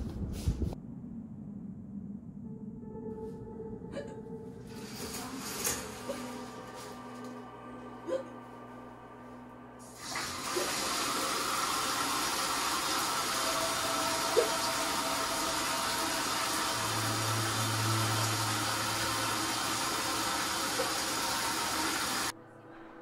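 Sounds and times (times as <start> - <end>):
low hum: 0.0 - 23.0
water pouring into bathtub: 10.0 - 22.3.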